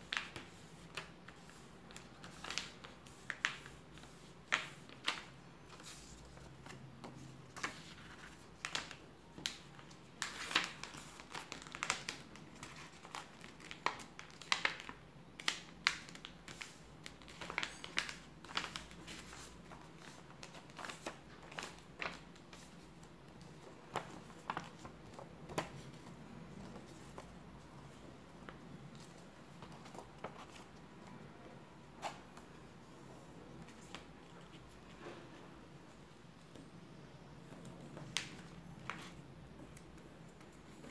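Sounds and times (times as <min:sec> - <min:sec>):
paper folding and crackling: 0:00.0 - 0:31.1, 0:37.6 - 0:40.9.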